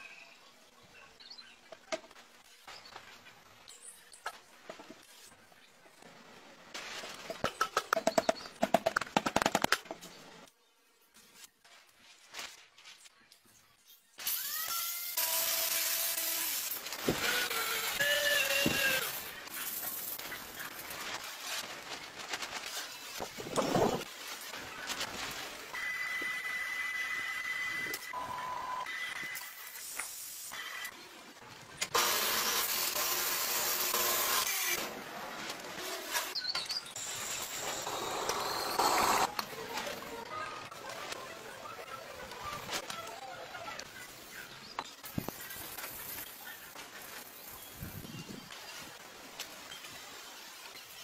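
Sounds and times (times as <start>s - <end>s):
power tools grinding and sanding: 14.2s - 21.6s, 31.9s - 40.1s.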